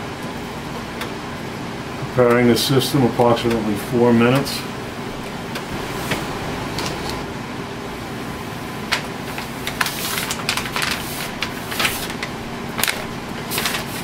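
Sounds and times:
printer humming: 0.0s - 14.0s
plastic wrapping rustling: 8.9s - 14.0s.

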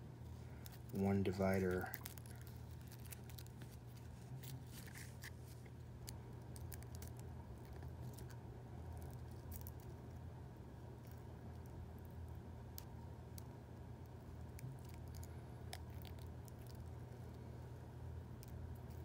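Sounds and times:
steady low hum: 0.0s - 19.0s
seed pod crackling: 0.4s - 10.1s.

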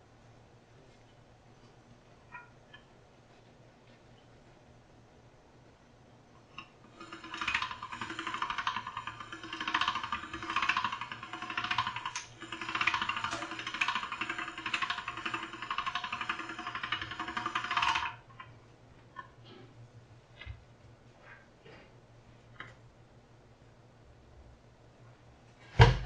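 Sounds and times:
pasta machine gears rattling: 6.6s - 18.6s.

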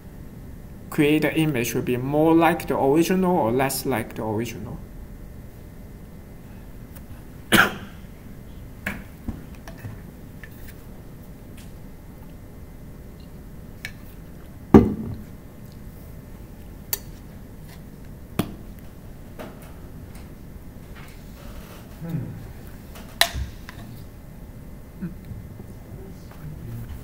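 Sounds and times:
room hum: 0.0s - 27.0s.

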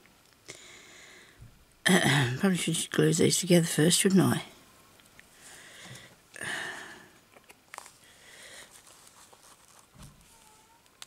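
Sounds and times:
soft rustle: 7.3s - 11.0s.

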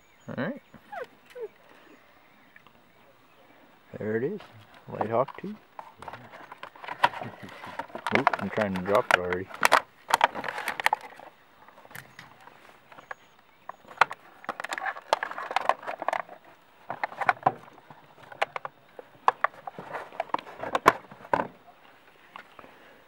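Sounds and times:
packaging rustling and clicking: 5.3s - 11.3s, 13.8s - 17.6s.

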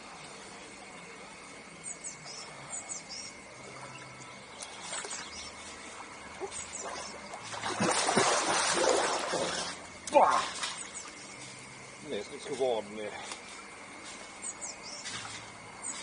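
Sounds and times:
water splashing in pool: 3.6s - 11.2s
bird chirps: 14.4s - 15.1s.

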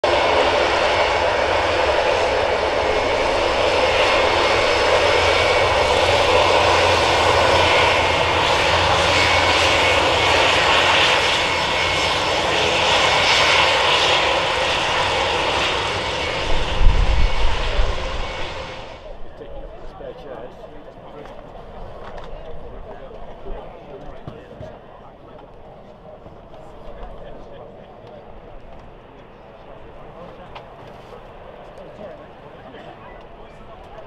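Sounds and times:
turboprop engines droning: 0.0s - 34.0s
gusty low rumble: 14.9s - 19.8s.

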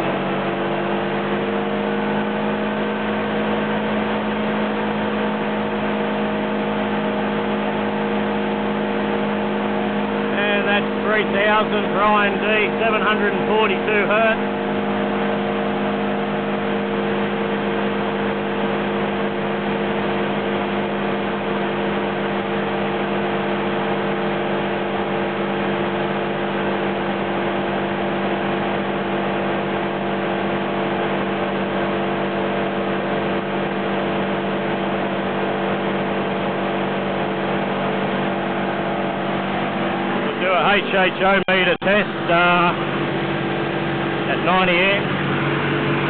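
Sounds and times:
engine running at raised revs: 0.0s - 46.0s.

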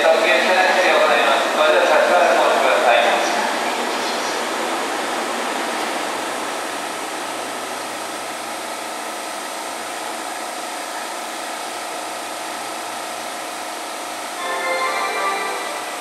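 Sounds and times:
electric train whirring hum: 0.0s - 16.0s.

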